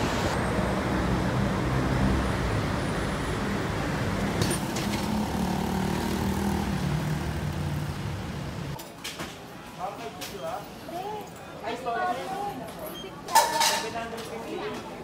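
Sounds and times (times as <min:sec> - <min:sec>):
cars passing: 0:00.0 - 0:08.8.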